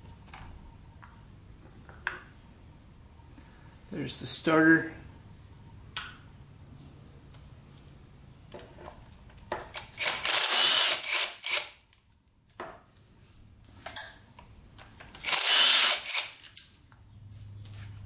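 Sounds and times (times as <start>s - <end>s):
power driver whirring: 9.8s - 11.7s, 15.2s - 16.4s.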